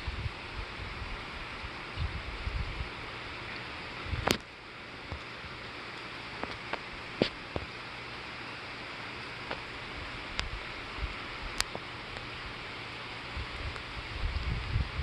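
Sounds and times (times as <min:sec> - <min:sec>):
storm wind hissing: 0:00.0 - 0:04.4, 0:09.7 - 0:15.0.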